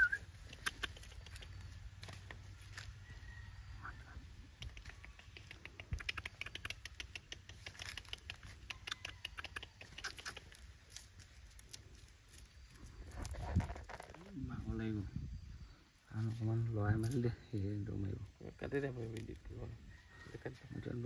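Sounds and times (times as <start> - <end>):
dry leaves crackling: 0.3 - 3.5, 10.0 - 14.3.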